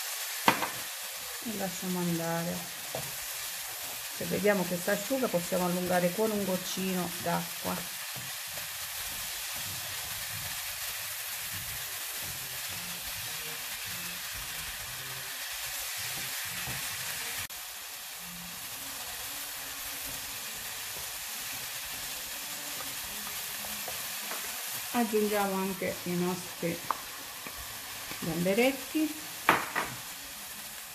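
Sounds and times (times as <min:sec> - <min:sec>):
vegetables sizzling in a pan: 0:00.0 - 0:30.9
wooden spatula stirring: 0:06.6 - 0:13.3.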